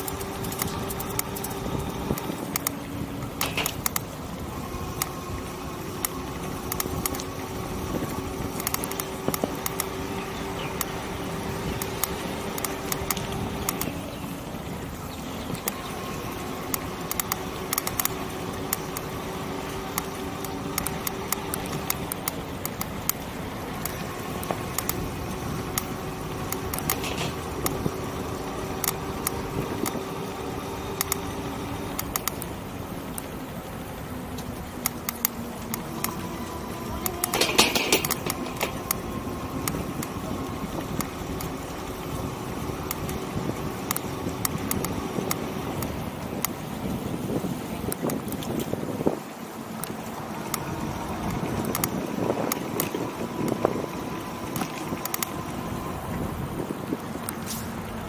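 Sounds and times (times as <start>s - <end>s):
bike clicks and rattles: 0.0s - 56.0s
tyres rumbling on paving: 0.0s - 58.0s
electric motor whine: 33.5s - 46.8s.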